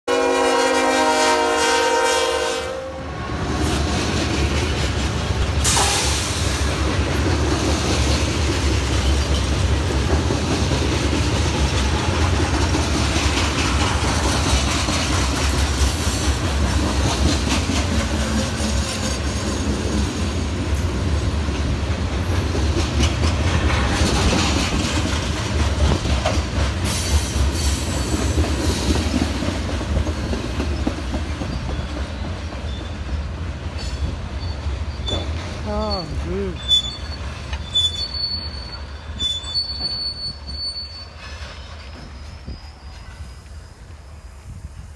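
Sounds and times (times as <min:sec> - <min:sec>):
locomotive horn: 0:00.1 - 0:03.9
freight train rumbling on rails: 0:00.1 - 0:44.9.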